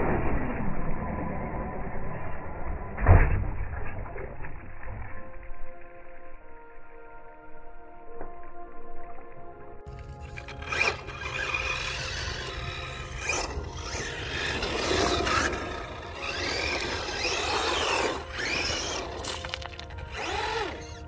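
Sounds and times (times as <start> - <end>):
background music: 5.2 - 21.0
electric motor whining: 9.9 - 21.0.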